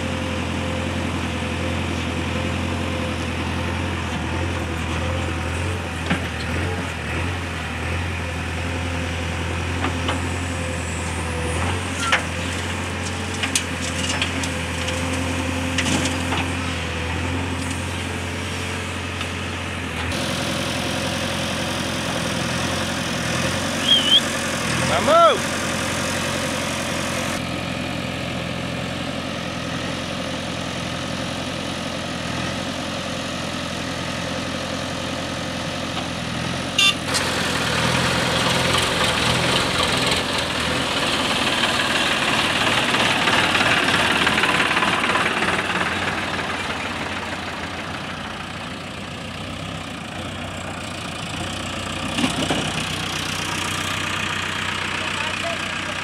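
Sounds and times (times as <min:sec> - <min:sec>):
diesel engines running: 0:00.0 - 0:56.0.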